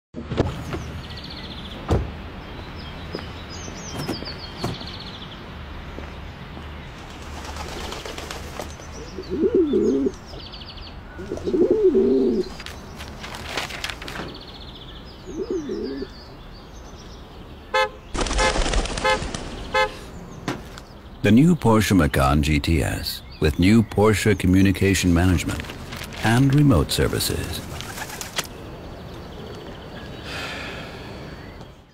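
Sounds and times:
small birds chirping: 0:00.5 - 0:31.9
pigeons cooing: 0:07.4 - 0:10.4, 0:11.2 - 0:12.7, 0:15.2 - 0:16.2
car horn toots: 0:17.7 - 0:18.0, 0:19.0 - 0:20.0.

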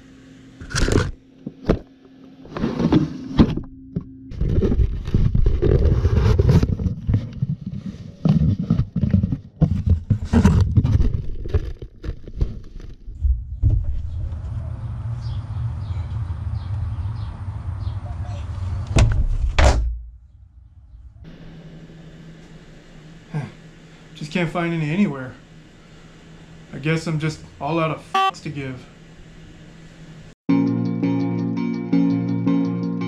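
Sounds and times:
low rumble: 0:13.0 - 0:22.0.

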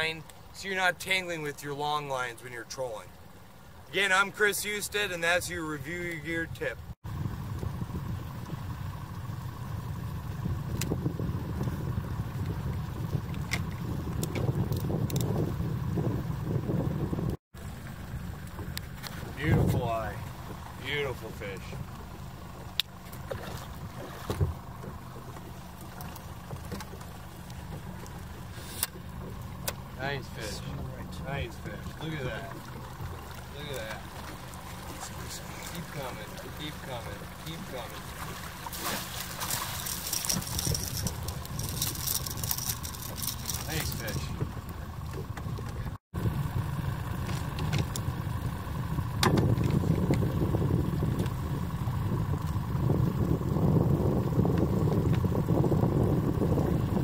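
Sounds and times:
boat motor droning: 0:00.0 - 0:57.0.

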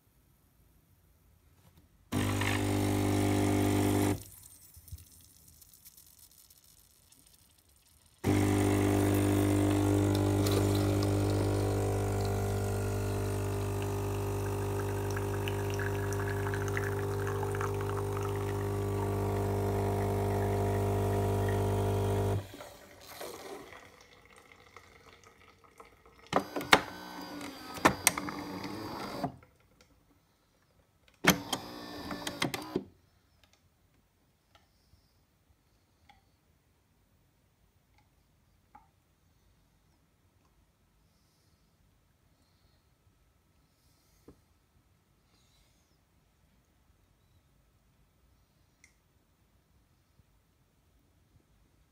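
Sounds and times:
espresso machine pump humming: 0:02.1 - 0:04.2, 0:08.2 - 0:23.8, 0:26.4 - 0:29.2, 0:31.3 - 0:32.8.

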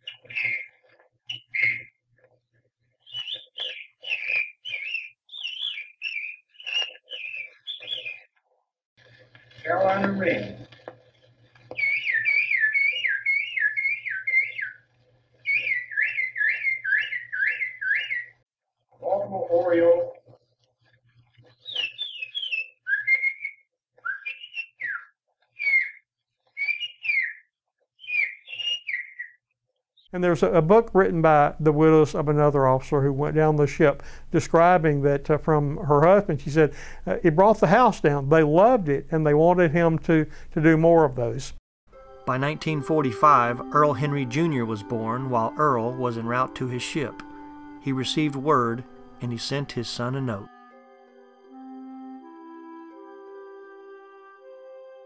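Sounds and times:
man whistling birdsong imitation: 0:00.0 - 0:02.0, 0:03.0 - 0:08.3, 0:11.8 - 0:14.8, 0:15.4 - 0:18.4, 0:21.5 - 0:29.4, 0:42.6 - 0:50.5.

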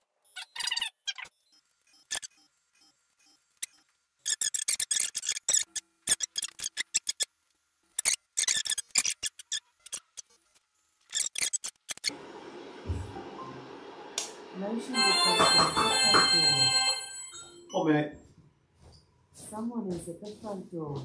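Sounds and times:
laser scanners chattering in rapid clicks: 0:00.3 - 0:12.1.

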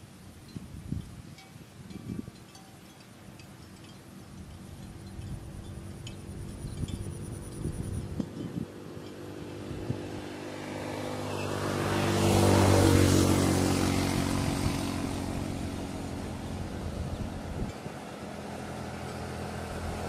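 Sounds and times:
vehicle engine passing: 0:05.8 - 0:20.0.

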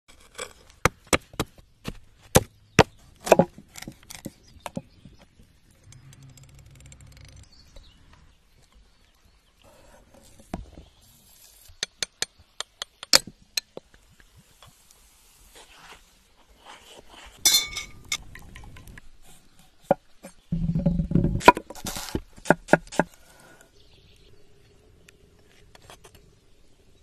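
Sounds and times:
cleaver chopping dirt and pine cones: 0:00.3 - 0:04.9, 0:21.4 - 0:23.1.

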